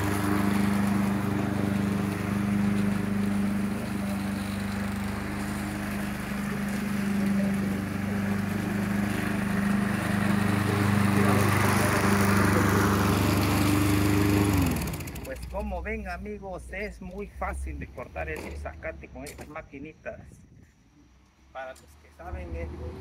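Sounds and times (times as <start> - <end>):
lawn mower cutting grass: 0.0 - 15.9, 22.2 - 23.0.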